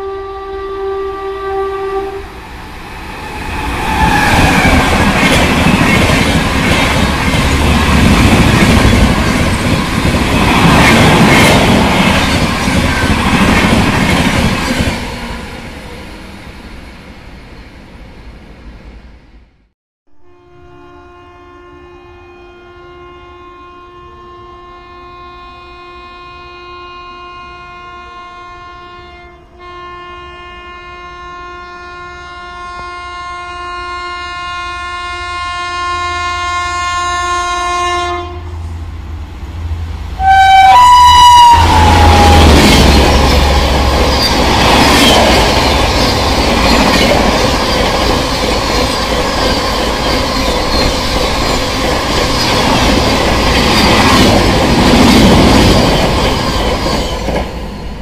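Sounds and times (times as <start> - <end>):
train horn blast: 0.0 - 2.4, 20.1 - 38.7, 40.2 - 46.0
train coaches rushing by: 2.4 - 19.0, 38.6 - 58.0.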